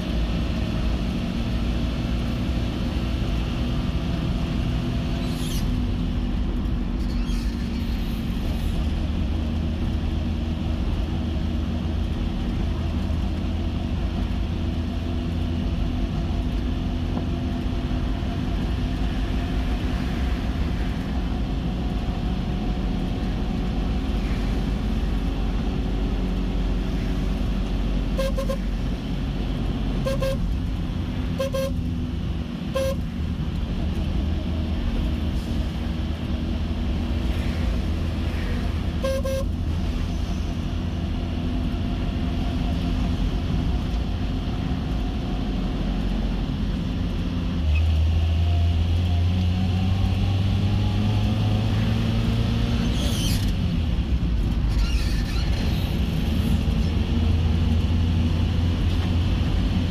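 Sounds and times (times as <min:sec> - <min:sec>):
car engine and road rumble: 0:00.0 - 0:59.9
car horn toots: 0:28.1 - 0:28.6, 0:30.0 - 0:30.5, 0:31.4 - 0:31.9, 0:32.7 - 0:33.1, 0:39.0 - 0:39.6.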